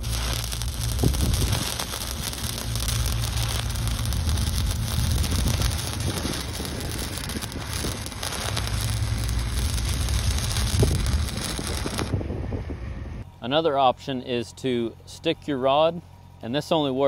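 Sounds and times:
welding arc crackling and sizzling: 0.0 - 12.2
low steady hum: 0.0 - 17.0.

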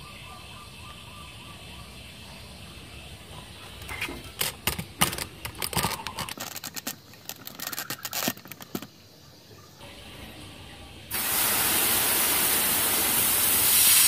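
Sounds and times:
hand handling rubber hose: 3.8 - 9.0
faint steady hiss: 6.5 - 14.0.

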